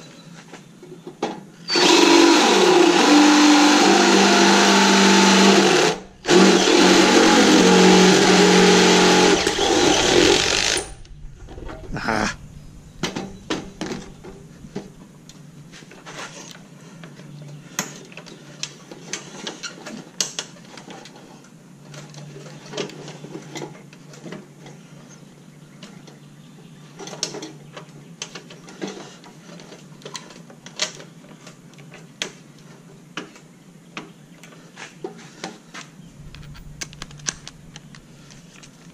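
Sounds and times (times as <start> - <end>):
cordless drill boring through steel: 1.6 - 11.0.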